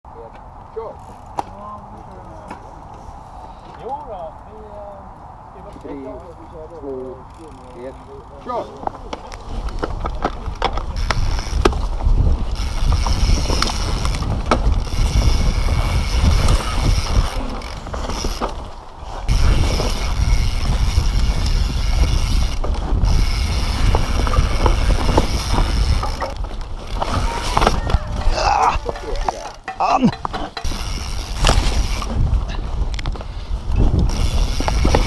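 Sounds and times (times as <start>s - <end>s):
bike tyres rumbling on dirt: 6.8s - 35.0s
freewheel ratchet buzzing: 12.5s - 18.5s, 19.3s - 27.8s, 30.5s - 32.3s, 33.8s - 35.0s
chain and frame rattling: 19.3s - 32.8s.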